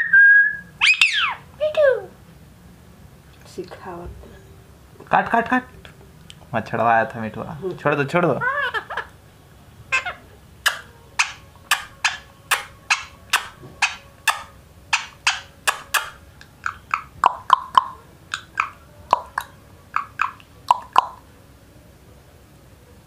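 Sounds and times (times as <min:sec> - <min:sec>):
parakeet making sharp clicks: 0:10.6 - 0:21.2.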